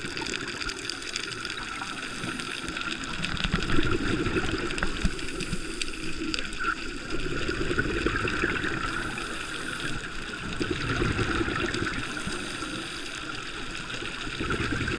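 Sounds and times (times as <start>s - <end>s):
diver's exhaled air bubbling: 0.0s - 14.9s
muffled underwater noise: 0.0s - 14.9s.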